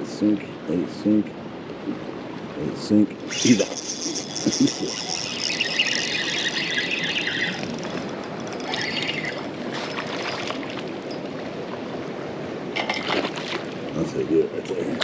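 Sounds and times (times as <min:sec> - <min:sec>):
wind: 0:00.0 - 0:15.0
water noise: 0:01.1 - 0:15.0
fishing reel drag whining: 0:03.2 - 0:11.4.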